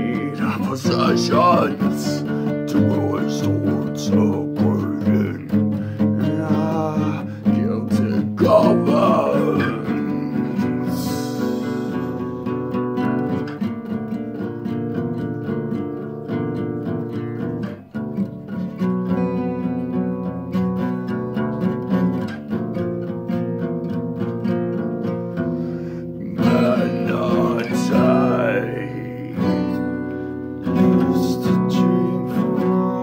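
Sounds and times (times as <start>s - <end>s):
man singing: 0.0s - 13.1s, 26.2s - 33.0s
acoustic guitar strummed hard: 0.0s - 33.0s.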